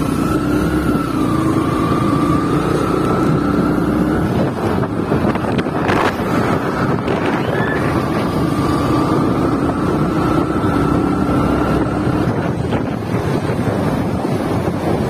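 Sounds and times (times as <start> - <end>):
traffic rumble: 0.0 - 15.0
wind buffeting microphone: 0.0 - 15.0.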